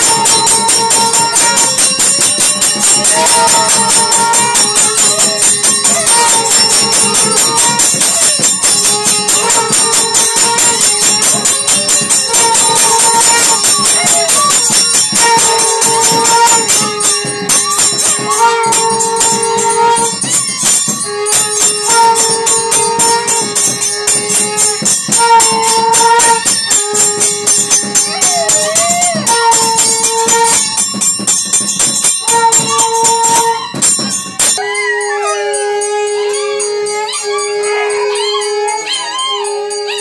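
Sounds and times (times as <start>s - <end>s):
held two-note tone: 0.0s - 40.0s
jingling bells and percussion: 0.0s - 40.0s
dog howling: 28.0s - 30.8s, 34.6s - 40.0s.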